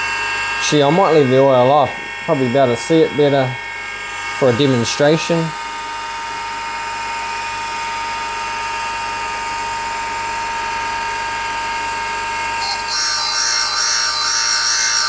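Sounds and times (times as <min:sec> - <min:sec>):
motor whine: 0:00.2 - 0:15.0
hissing grinding stone: 0:12.6 - 0:15.0.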